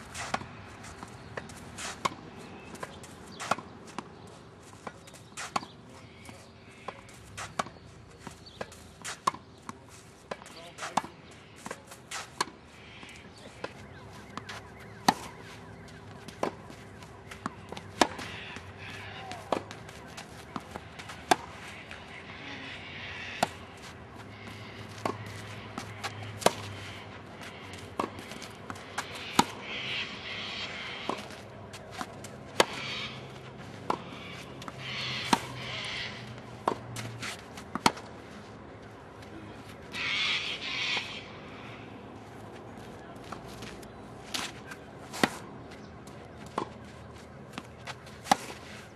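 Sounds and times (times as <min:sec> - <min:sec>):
tennis ball struck by rackets: 0:00.2 - 0:04.2, 0:04.8 - 0:05.8, 0:10.3 - 0:22.0, 0:23.4 - 0:29.7, 0:31.0 - 0:35.6, 0:36.2 - 0:38.2, 0:44.2 - 0:46.9, 0:47.5 - 0:48.8.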